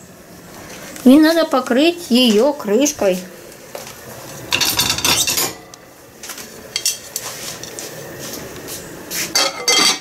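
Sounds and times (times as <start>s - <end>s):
kitchenware clattering: 4.5s - 5.7s, 9.3s - 10.0s.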